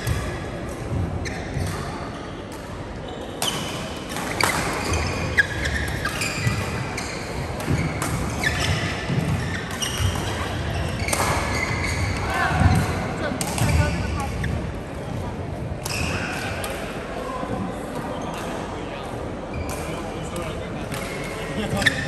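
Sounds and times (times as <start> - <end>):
shoes squeaking on court floor: 1.2 - 14.8, 19.5 - 22.0.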